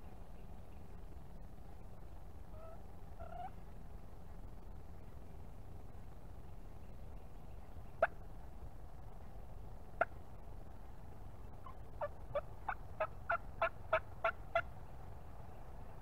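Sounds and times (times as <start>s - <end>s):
turkey clucks: 2.5s - 3.6s, 7.9s - 8.2s, 10.0s - 10.2s, 11.5s - 14.7s
turkey yelps: 2.5s - 3.6s, 11.6s - 14.7s.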